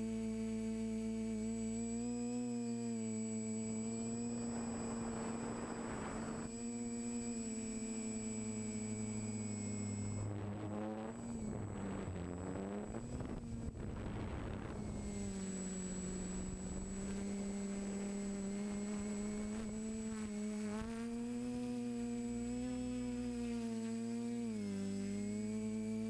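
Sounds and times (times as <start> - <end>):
quadcopter propellers whirring: 0.0 - 26.0.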